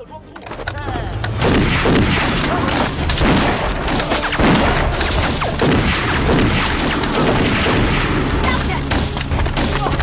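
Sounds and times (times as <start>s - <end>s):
gunshots: 1.3s - 10.0s
booming blasts: 1.4s - 9.0s.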